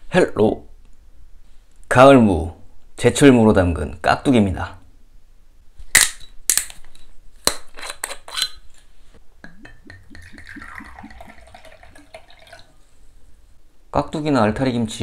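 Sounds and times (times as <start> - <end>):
liquid glugging into glass: 9.4 - 12.8.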